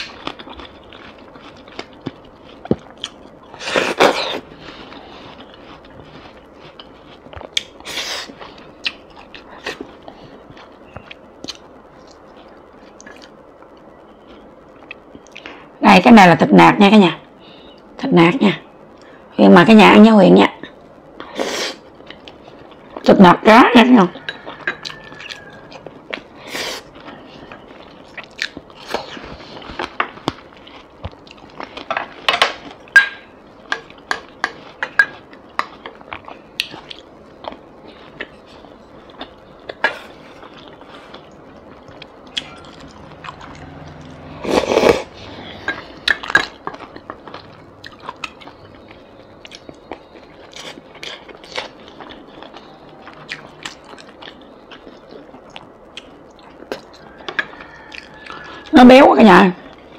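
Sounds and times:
person chewing: 0:00.0 - 0:13.4, 0:24.4 - 0:32.9, 0:33.6 - 0:58.7.

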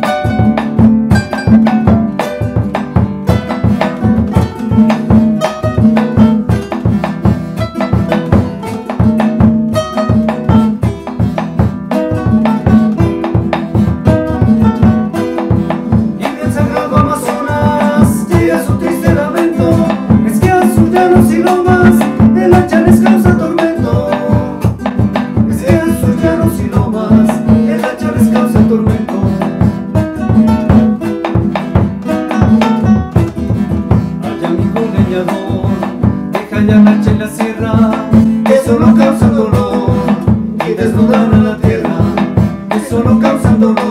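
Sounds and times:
plucked guitar melody: 0:00.0 - 0:43.9
rhythmic guitar accompaniment: 0:00.0 - 0:43.9.

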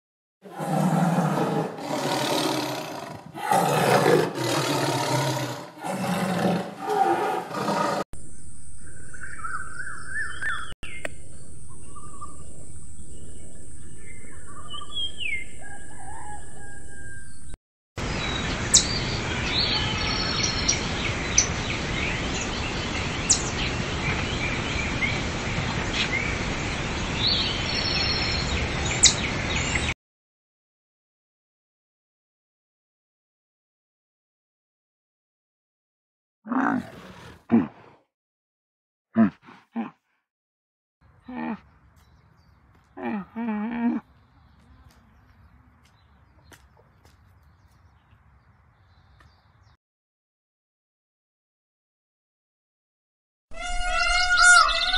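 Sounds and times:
tiger roaring and growling: 0:00.4 - 0:08.0, 0:36.5 - 0:38.1, 0:39.2 - 0:40.0
birds chirping: 0:00.7 - 0:29.9, 0:41.1 - 0:49.8, 0:53.6 - 0:54.9
steady outdoor hiss: 0:18.0 - 0:29.7.

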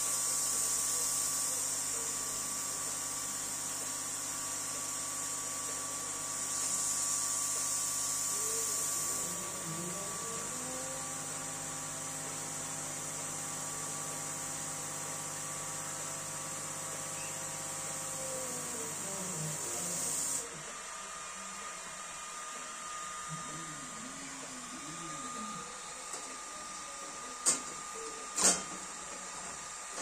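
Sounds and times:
fan hiss: 0:06.2 - 0:10.4.

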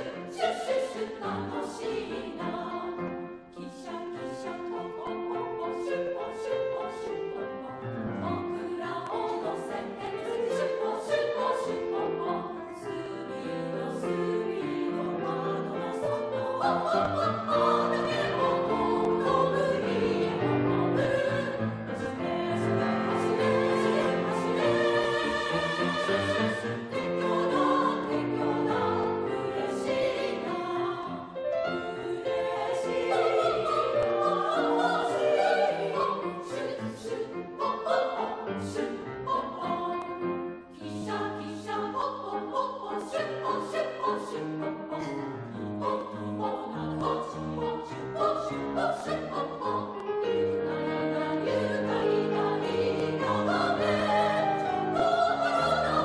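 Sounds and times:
women's choir singing: 0:00.0 - 0:56.0
piano accompaniment: 0:04.6 - 0:41.1.

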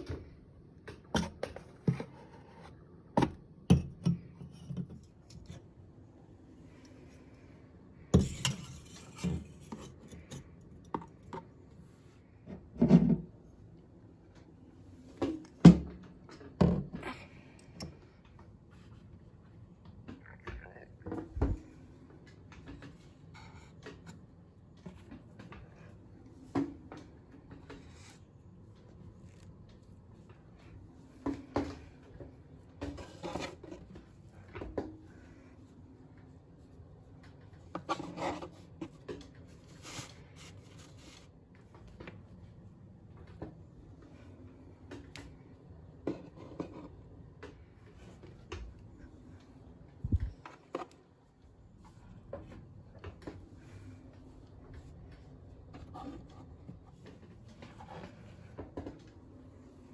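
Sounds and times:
rubbing and rustling: 0:21.5 - 0:42.7.

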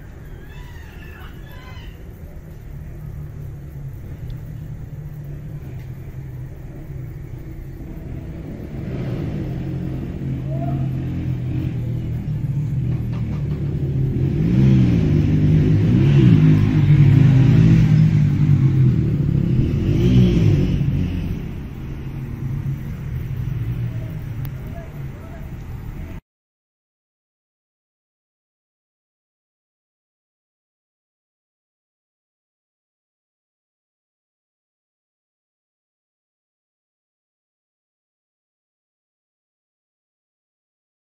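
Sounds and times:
low steady rumble: 0:00.0 - 0:26.2
motor engine running: 0:02.5 - 0:26.1.

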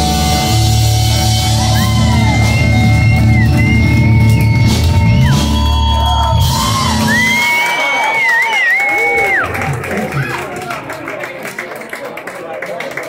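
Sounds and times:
live rock band playing: 0:00.0 - 0:07.9.

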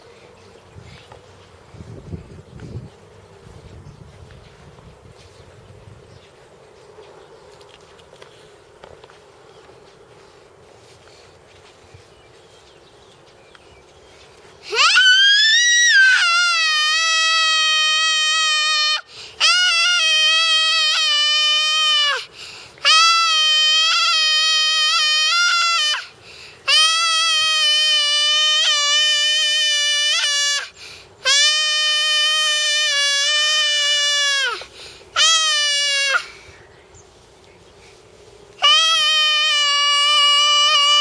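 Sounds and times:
boy yelling: 0:14.7 - 0:26.1, 0:26.7 - 0:30.7, 0:31.3 - 0:36.4, 0:38.6 - 0:41.0.

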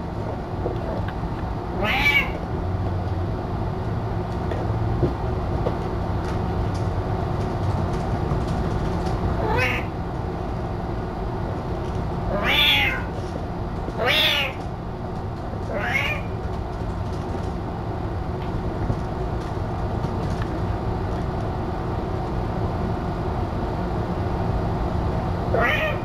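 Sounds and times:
steady low hum: 0:00.0 - 0:26.0
cat meowing: 0:01.8 - 0:02.4, 0:09.4 - 0:09.9, 0:12.3 - 0:13.2, 0:14.0 - 0:14.6, 0:15.7 - 0:16.4, 0:25.5 - 0:26.0.

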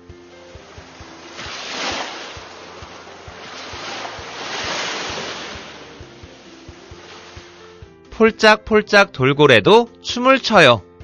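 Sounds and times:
ocean waves washing in: 0:00.0 - 0:08.0.

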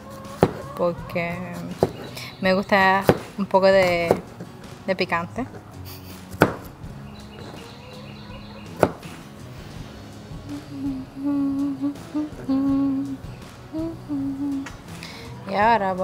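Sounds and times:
knife tapping cutting board: 0:03.0 - 0:04.3, 0:08.8 - 0:09.1
person humming a tune: 0:10.4 - 0:15.6.

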